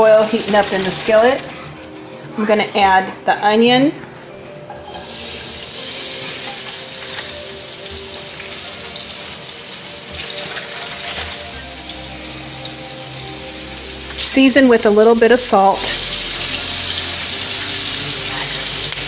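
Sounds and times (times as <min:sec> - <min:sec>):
onions sizzling in oil: 0:04.8 - 0:19.0.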